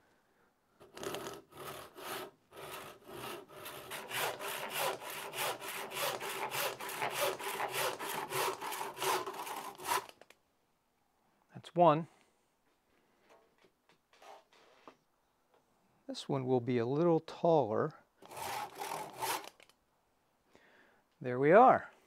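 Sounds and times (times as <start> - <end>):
handsaw cutting branch: 0.8 - 10.3, 18.2 - 19.7.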